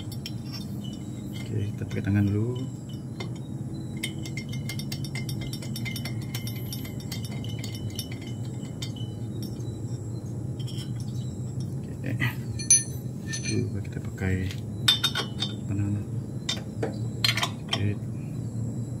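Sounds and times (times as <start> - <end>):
metallic clinks of nuts on studs: 0.0 - 9.6, 12.5 - 13.7, 14.9 - 15.7, 16.5 - 17.9
low steady hum: 0.0 - 19.0.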